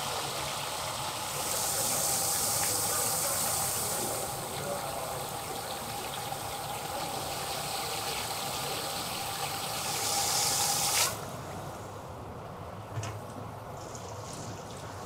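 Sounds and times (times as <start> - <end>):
machine churning water and rice: 0.0 - 11.8
running water: 0.0 - 12.0.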